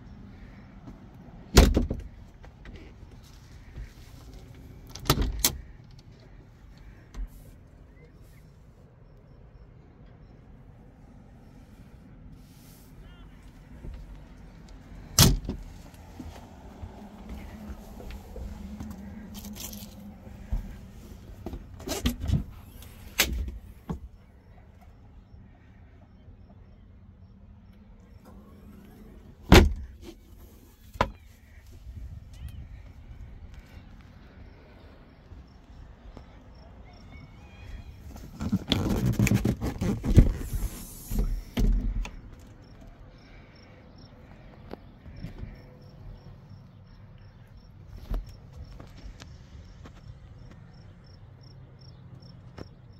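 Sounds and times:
rustling and scraping: 15.6 - 24.2, 37.6 - 42.6.

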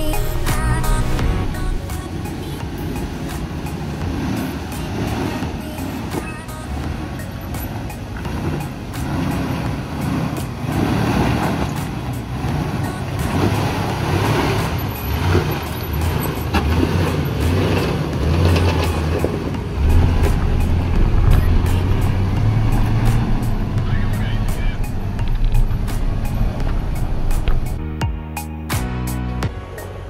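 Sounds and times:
car engine running at low speed: 0.0 - 28.0
tyres crunching on rock and gravel: 5.5 - 27.8.

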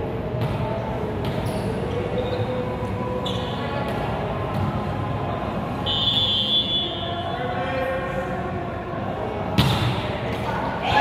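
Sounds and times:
gym hall noise: 0.0 - 11.0
shoe squeaks: 1.3 - 2.6, 3.2 - 3.9
volleyball hits and thuds: 9.6 - 10.5.

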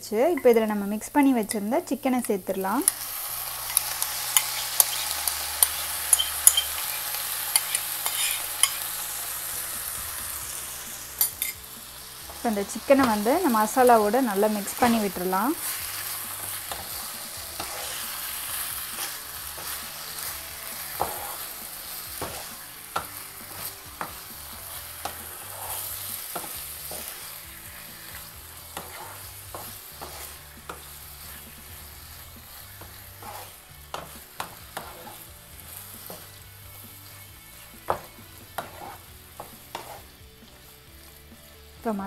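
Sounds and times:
chicken sizzling in a pan: 0.0 - 42.0
wooden spatula knocking and scraping pan: 12.2 - 35.3, 36.0 - 36.3, 37.6 - 40.7.

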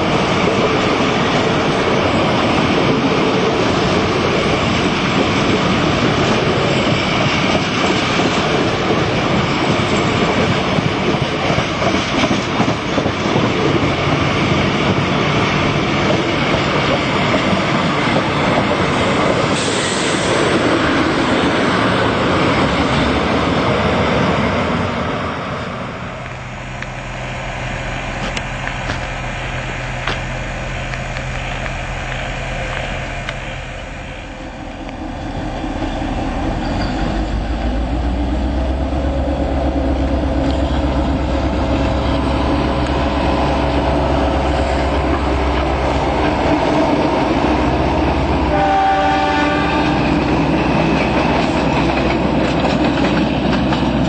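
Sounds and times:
locomotive rumble: 0.0 - 54.0
train cars rushing past: 0.0 - 54.0
train horn: 48.4 - 50.3.

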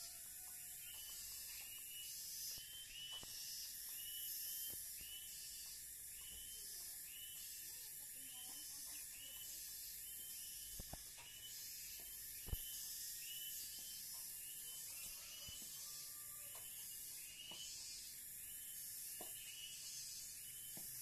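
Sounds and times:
steady high hiss: 0.0 - 20.8.

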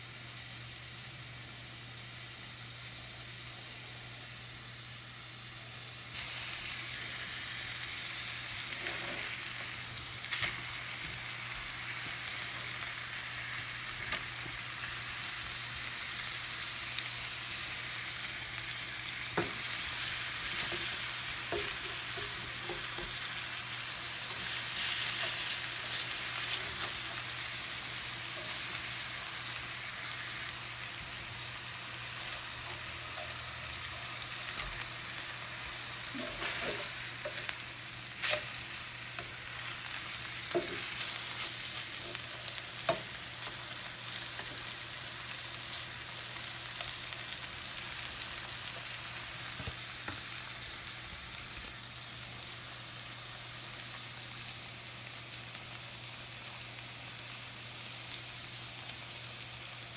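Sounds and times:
fish sizzling in a skillet: 5.2 - 59.9
spatula scraping a pan: 8.7 - 9.6, 36.1 - 37.5.

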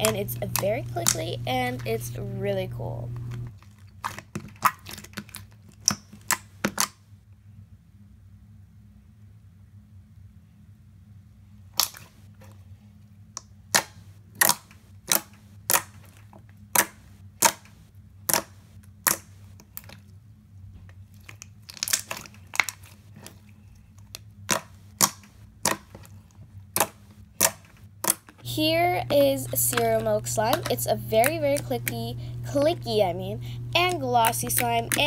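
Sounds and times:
slime clicking and popping: 0.0 - 1.3, 4.0 - 7.0, 11.8 - 12.1, 13.7 - 16.0, 16.7 - 17.7, 18.3 - 20.0, 21.2 - 23.3, 24.1 - 28.4.

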